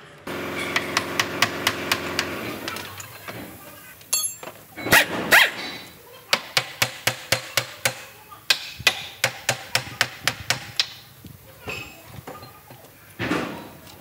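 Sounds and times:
hammer striking metal: 4.1s - 4.5s
dog-like barks: 4.9s - 5.7s.

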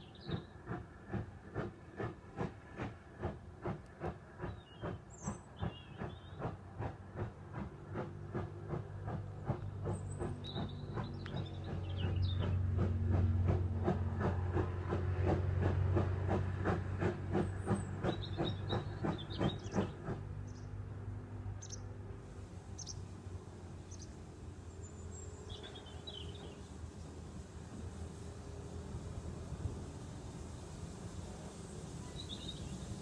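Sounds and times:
steam locomotive chuffing: 0.0s - 22.9s.

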